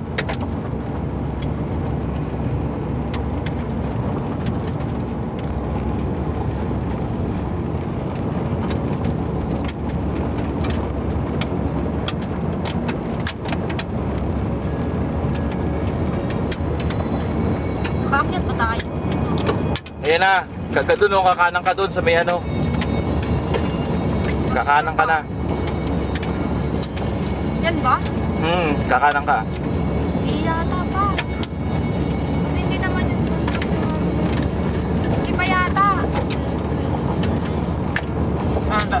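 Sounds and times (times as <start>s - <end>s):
car tyres and engine rumble: 0.0s - 39.0s
sharp ticks: 15.3s - 24.5s, 25.4s - 28.4s.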